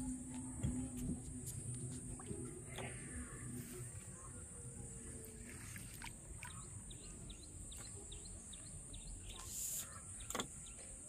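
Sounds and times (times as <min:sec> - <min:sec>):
steady high hiss: 0:08.8 - 0:10.5.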